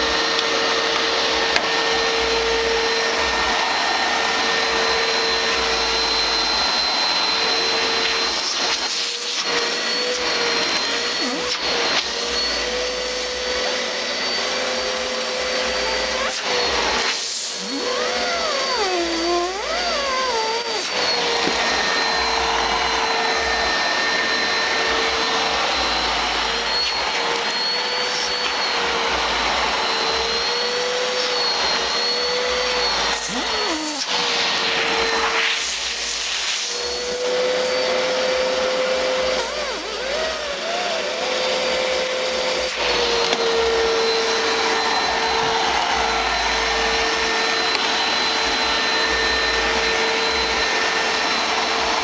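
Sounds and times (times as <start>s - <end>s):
vacuum cleaner running: 0.0s - 52.0s.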